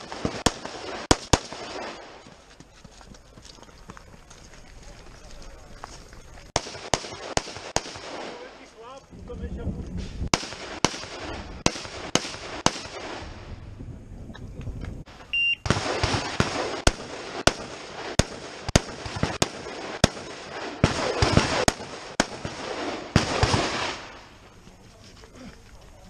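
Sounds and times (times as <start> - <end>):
rifle shots: 0.0 - 2.2, 6.6 - 8.7, 10.3 - 13.4, 15.6 - 24.4
electronic timer beep: 15.3 - 15.6.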